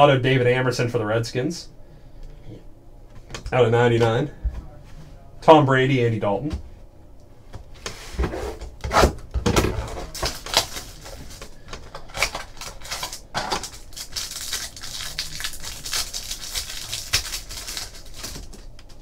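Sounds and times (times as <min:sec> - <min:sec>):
plastic wrapper crinkling: 0:10.0 - 0:19.0.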